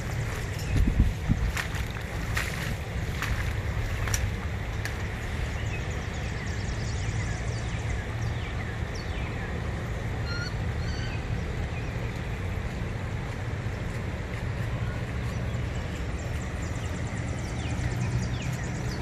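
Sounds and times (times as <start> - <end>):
low outdoor background rush: 0.0 - 19.0
bird whistled calls: 10.2 - 11.2.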